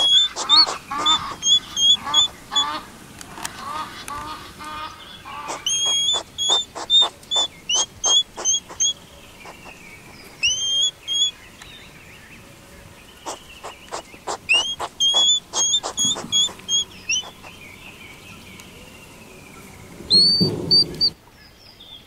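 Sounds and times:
honk-like nasal animal calls: 3.6 - 8.9, 13.3 - 17.5
sharp clicks: 5.5 - 11.7, 13.3 - 17.5
short high chirps: 10.4 - 11.3, 13.3 - 17.4.

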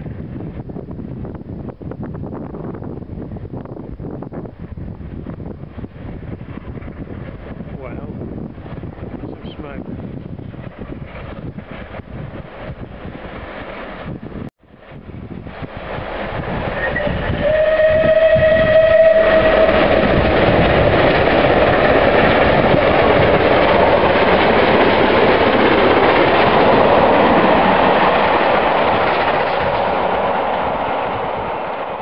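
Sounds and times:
train wheels on rails: 5.0 - 32.0
steam locomotive exhaust: 10.8 - 32.0
steam whistle: 16.7 - 20.0.

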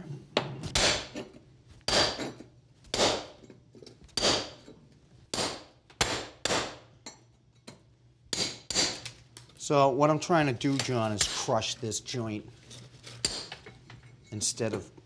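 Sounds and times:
hammer striking metal chisel: 8.3 - 9.0.

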